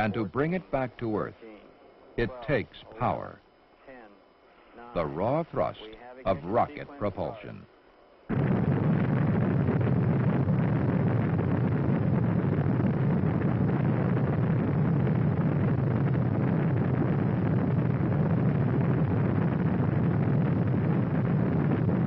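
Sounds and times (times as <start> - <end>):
rocket engine firing: 8.3 - 22.0.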